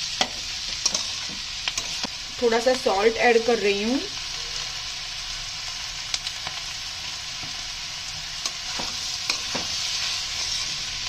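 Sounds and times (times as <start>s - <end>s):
vegetables sizzling in oil: 0.0s - 11.0s
metal spatula scraping pan: 0.2s - 2.0s, 8.4s - 10.9s.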